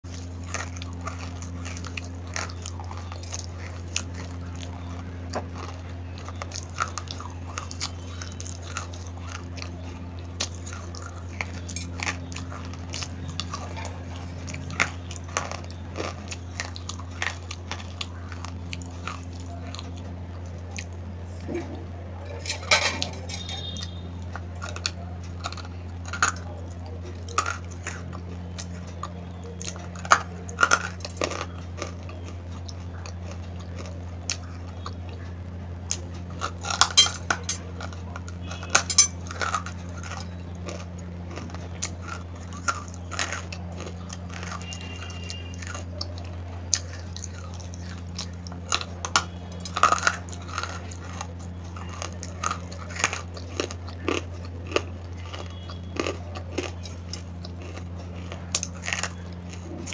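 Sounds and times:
crunchy chewing: 0.0s - 59.9s
low hum: 0.0s - 59.9s.

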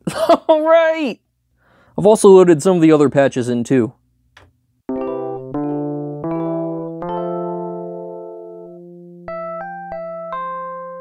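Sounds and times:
synthesizer chords: 4.9s - 11.0s.

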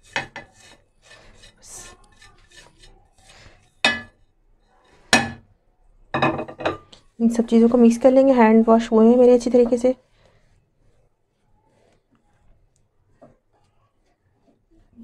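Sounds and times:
soft scraping and tapping: 0.0s - 5.5s, 9.2s - 15.0s
glass bowls clinking: 3.9s - 4.2s, 6.2s - 6.9s.

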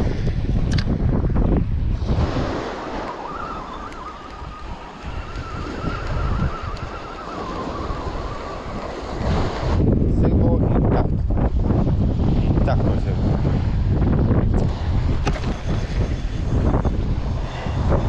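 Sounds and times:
sea surf: 0.0s - 18.0s
wind buffeting microphone: 0.0s - 18.0s
faint wavering tone: 2.9s - 9.0s.

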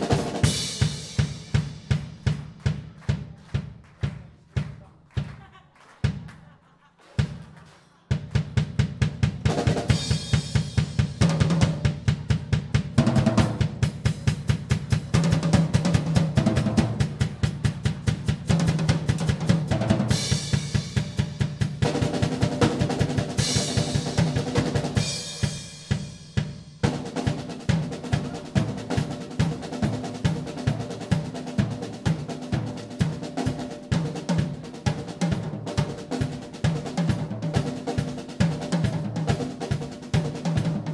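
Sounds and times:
bass drum: 0.0s - 6.3s, 7.2s - 33.2s
drum rolls on snare and toms: 0.0s - 6.4s, 7.1s - 40.9s.

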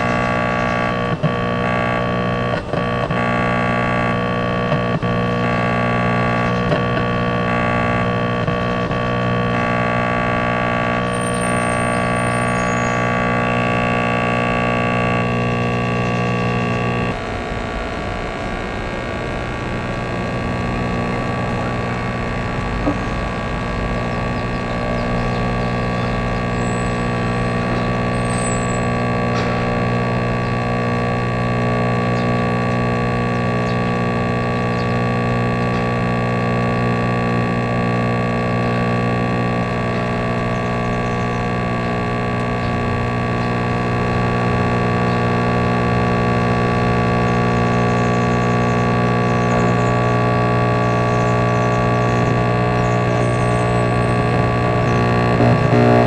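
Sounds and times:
electronic drone music: 0.0s - 56.0s.

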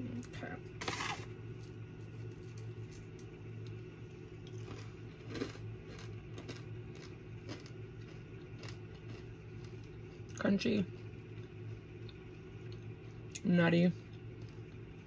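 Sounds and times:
steady low hum: 0.0s - 15.0s
granola crunching while chewed: 4.4s - 10.4s.

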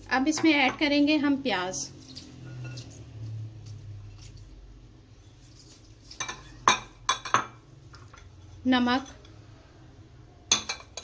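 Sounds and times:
glass bowls clinking: 2.4s - 3.0s, 6.1s - 8.3s, 10.5s - 11.0s.

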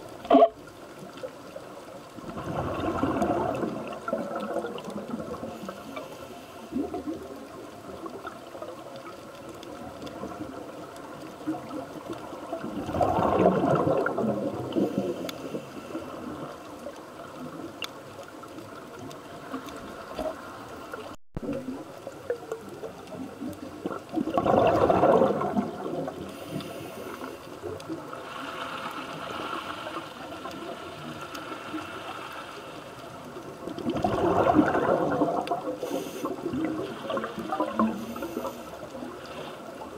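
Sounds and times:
underwater hiss: 5.2s - 7.2s, 13.0s - 16.5s, 24.7s - 32.9s, 34.4s - 39.8s
regulator exhaling bubbles: 12.7s - 15.3s, 24.2s - 26.7s, 33.8s - 38.6s.

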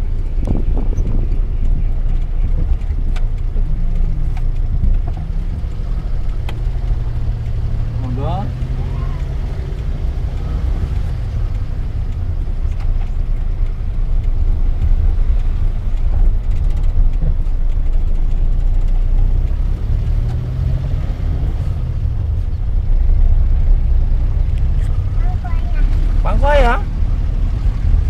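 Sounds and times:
van engine and road rumble: 0.0s - 28.0s.

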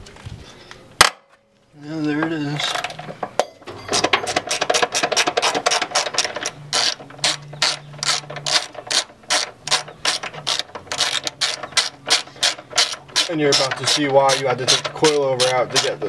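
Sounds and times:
socket ratchet clicking: 4.0s - 16.0s.

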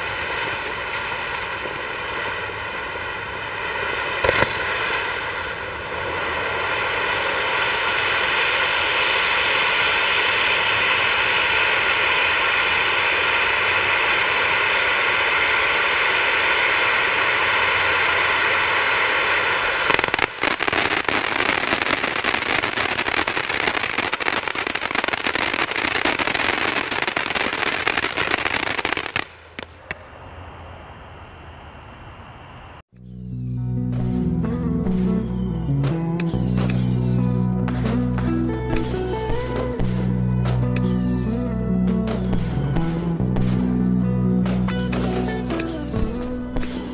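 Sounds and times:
firework crackling: 0.0s - 30.3s, 33.0s - 33.6s, 36.2s - 41.6s, 44.7s - 46.9s
firework fountain hissing: 0.0s - 30.4s, 33.0s - 33.6s, 36.2s - 37.6s, 38.8s - 40.1s, 40.8s - 41.6s, 44.7s - 46.9s.

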